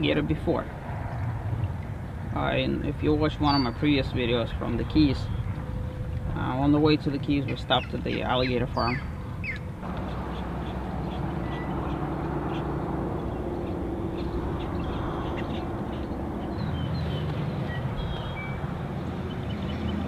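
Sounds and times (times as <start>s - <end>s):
water noise: 0.0s - 20.0s
wind: 0.0s - 20.0s
high bird chirps: 13.3s - 18.6s.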